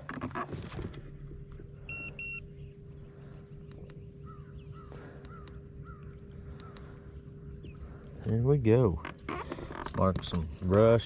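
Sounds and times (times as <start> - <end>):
short electronic beeps: 1.9 - 2.4
light clicks: 3.7 - 4.0, 5.2 - 6.9.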